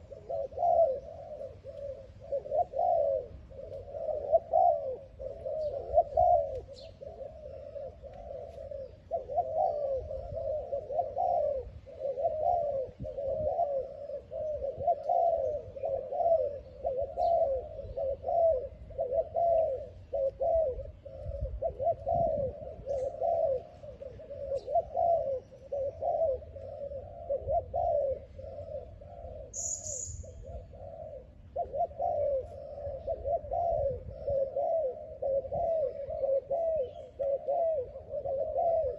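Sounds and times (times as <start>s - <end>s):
doves cooing: 0.0s - 38.9s
small bird chirp: 6.5s - 9.0s, 29.4s - 30.8s.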